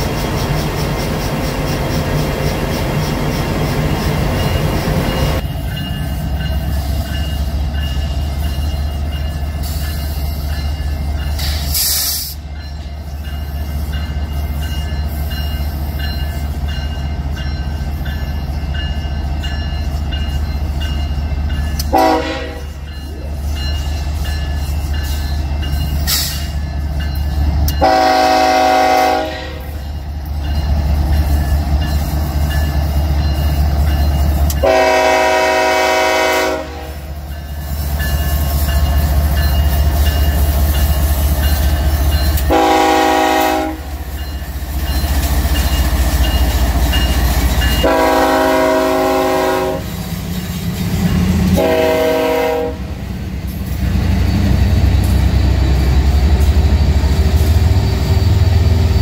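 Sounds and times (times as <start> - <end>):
locomotive engine rumble: 0.0 - 59.0
train air horn blasts: 21.9 - 22.7, 27.8 - 29.8, 34.6 - 37.1, 42.4 - 44.0, 47.8 - 50.0, 51.5 - 52.9.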